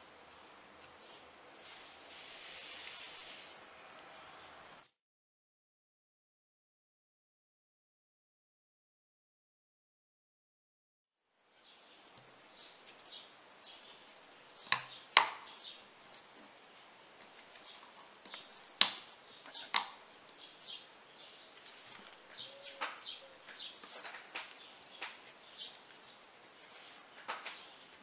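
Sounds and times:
faint birds chirping: 0:00.0 - 0:04.9, 0:11.4 - 0:28.0.

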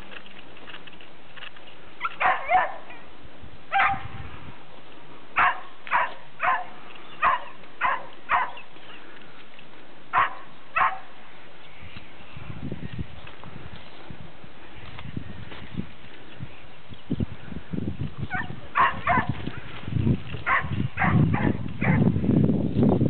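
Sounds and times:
dog barking: 0:02.0 - 0:03.0, 0:03.7 - 0:04.0, 0:05.4 - 0:08.6, 0:10.1 - 0:11.1, 0:18.3 - 0:19.3, 0:20.4 - 0:22.0.

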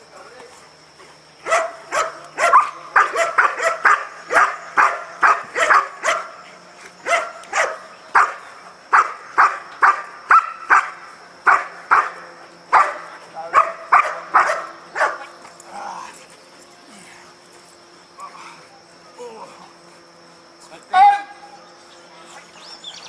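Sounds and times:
dog barking: 0:01.4 - 0:06.4, 0:07.0 - 0:15.3.

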